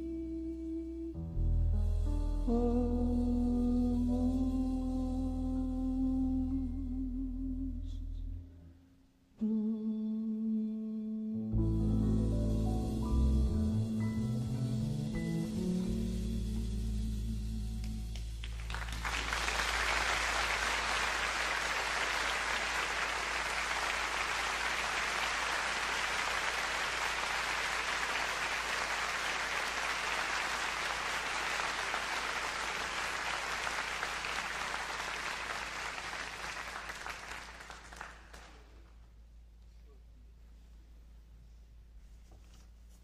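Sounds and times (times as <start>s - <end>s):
audience applauding: 18.4s - 38.9s.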